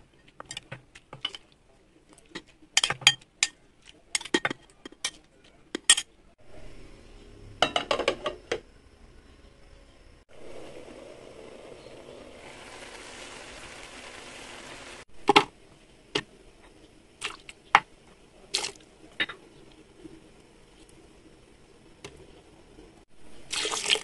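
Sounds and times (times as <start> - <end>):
covered pan hissing: 10.3 - 15.1.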